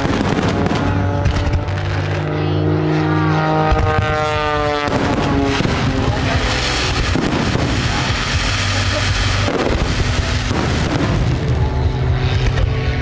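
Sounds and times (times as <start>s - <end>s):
fireworks popping and crackling: 0.0s - 2.3s, 3.7s - 13.0s.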